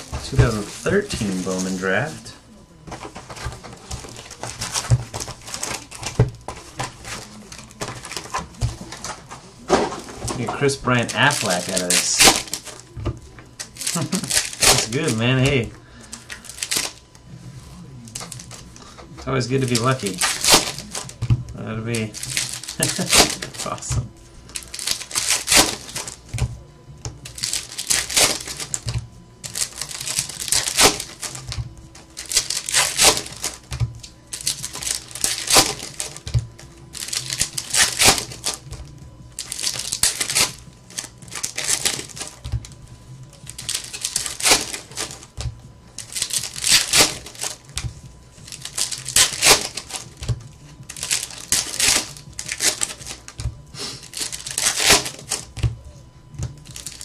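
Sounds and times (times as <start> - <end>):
foil wrappers crinkling: 0.0 - 57.0.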